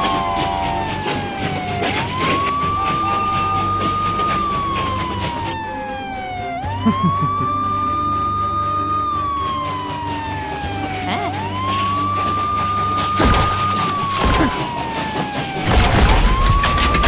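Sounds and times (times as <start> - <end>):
police siren wailing: 0.0 - 17.0.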